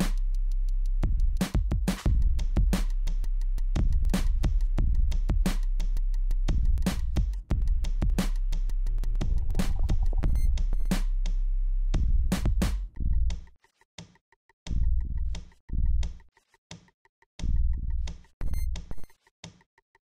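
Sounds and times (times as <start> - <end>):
electronic music with drum-machine beat: 1.0 - 5.8, 6.4 - 11.2, 17.4 - 19.3.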